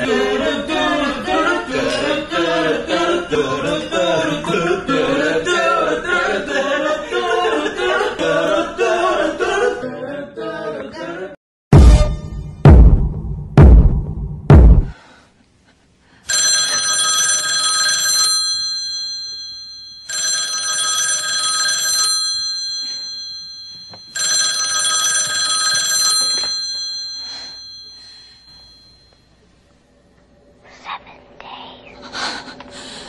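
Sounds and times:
telephone ringing: 16.3 - 29.3.

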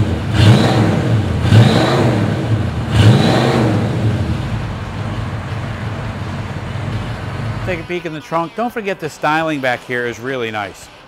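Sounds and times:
car engine revving and idling: 0.0 - 8.0.

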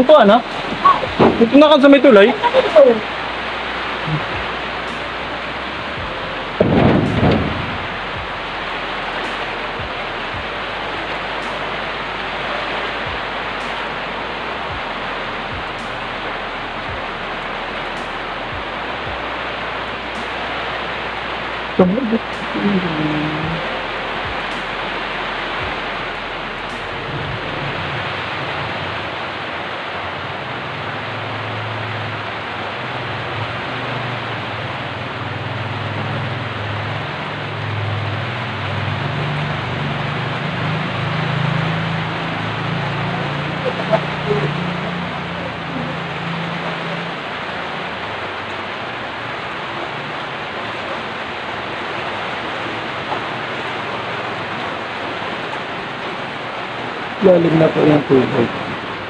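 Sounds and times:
low wavering rumble: 0.0 - 31.4
heavy rain hissing: 0.0 - 59.0.

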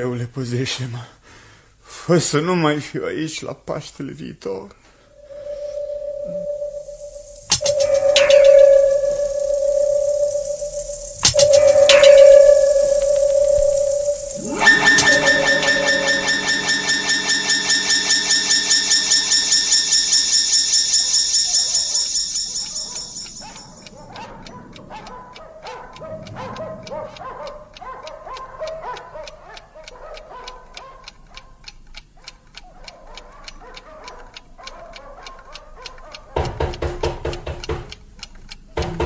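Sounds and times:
rapidly pulsing sustained chord: 5.2 - 24.5
soft scattered notes: 5.2 - 28.4
clock-like ticking: 5.2 - 39.0.

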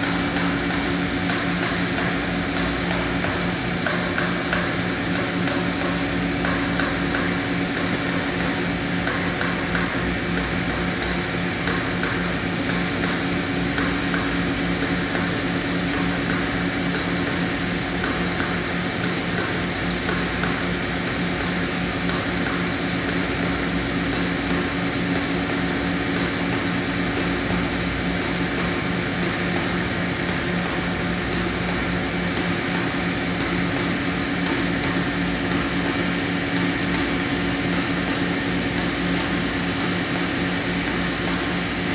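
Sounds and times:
machine hum with high whine: 0.0 - 41.9.

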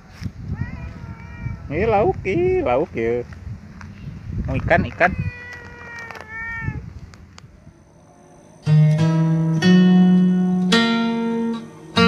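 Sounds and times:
cat meowing: 0.5 - 2.1, 5.0 - 6.9
plucked string music: 8.6 - 12.0.

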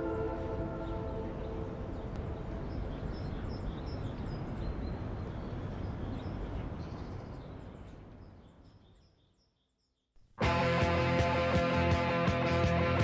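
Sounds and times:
low city rumble: 0.0 - 9.6
small birds chirping: 0.0 - 10.2.

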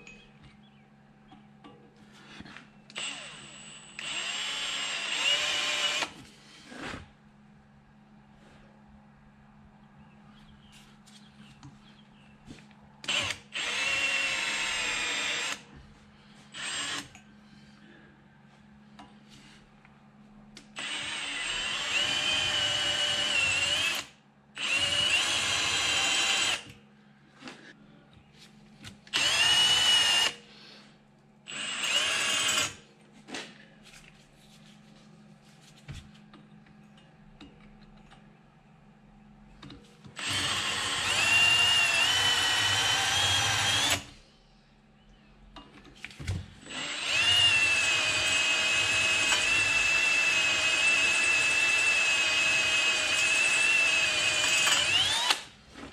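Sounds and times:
electric drill whining: 2.9 - 6.2, 13.0 - 15.6, 16.5 - 17.2, 20.8 - 26.8, 29.1 - 30.4, 31.5 - 32.8, 40.2 - 44.1, 46.6 - 55.5.

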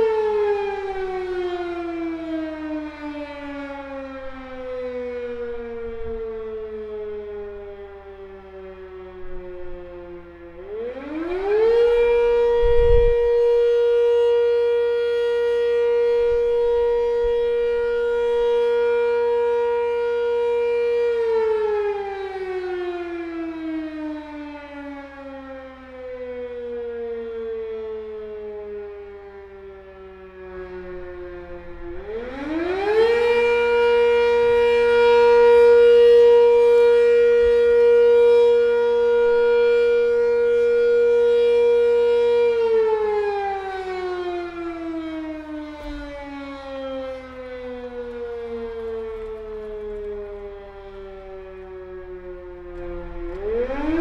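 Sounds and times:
warning siren winding up and down: 0.0 - 54.0.

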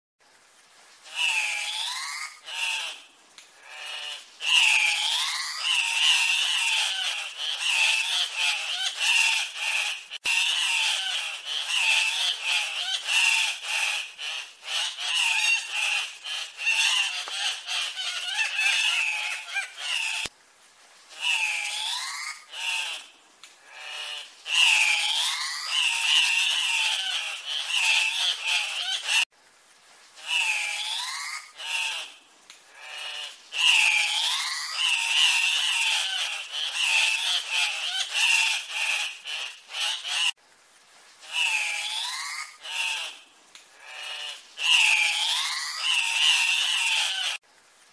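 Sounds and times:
birds calling: 4.5 - 20.3.

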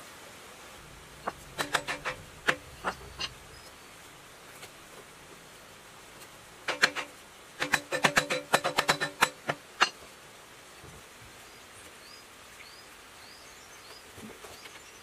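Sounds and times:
hammer tapping on metal: 1.0 - 3.6, 6.7 - 10.0.

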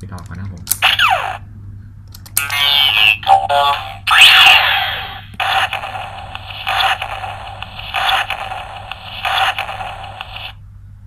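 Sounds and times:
rhythmic electronic pulse: 5.0 - 10.6.

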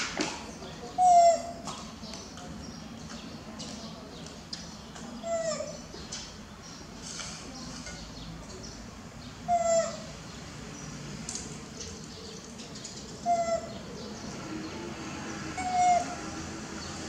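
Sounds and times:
baby monkey coo calls: 0.9 - 1.6, 5.2 - 5.8, 9.5 - 10.2, 13.2 - 14.2, 15.4 - 16.5.

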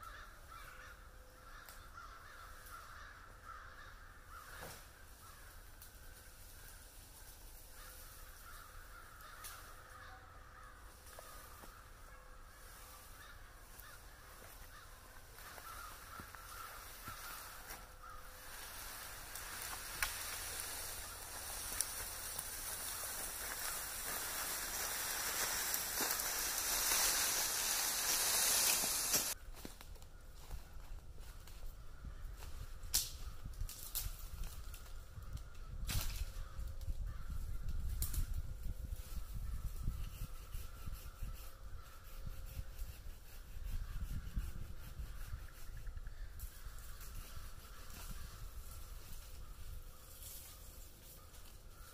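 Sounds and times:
crows cawing: 0.0 - 6.2, 7.7 - 29.4
branches dragged over forest floor: 12.6 - 29.8.

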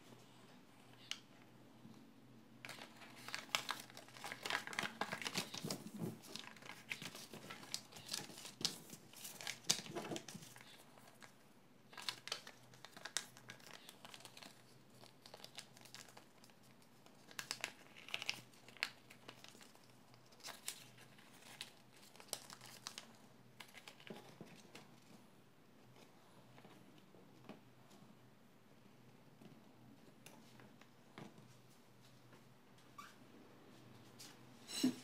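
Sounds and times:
paper crinkling and rustling: 2.6 - 25.2.

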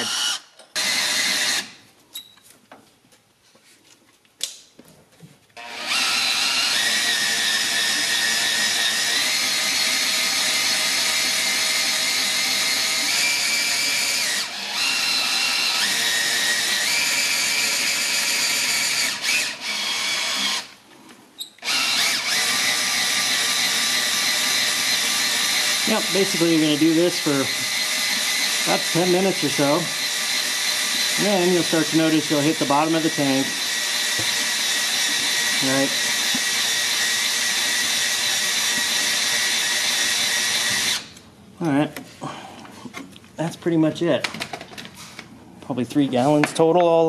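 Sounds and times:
power drill whining: 0.0 - 1.8, 5.6 - 20.8, 21.4 - 41.2.

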